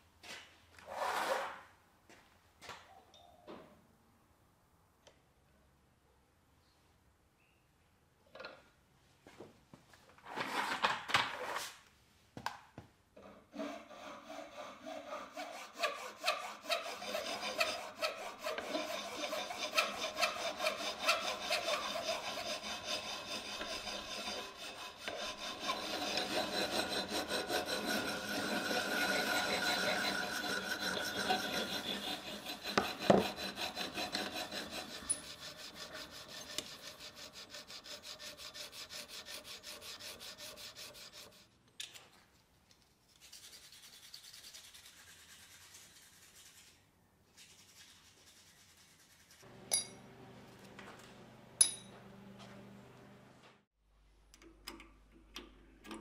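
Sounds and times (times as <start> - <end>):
hand file rasping on metal: 13.4 - 41.5.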